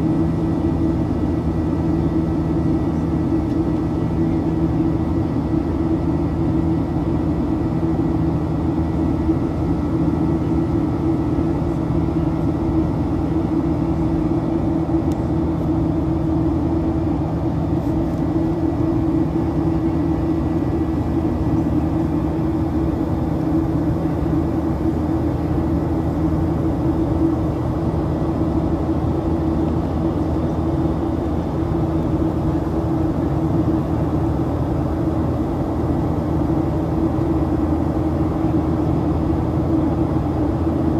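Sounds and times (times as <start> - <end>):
engine fan buzzsaw tone: 0.0 - 40.9
jet engine drone in cabin: 0.0 - 40.9.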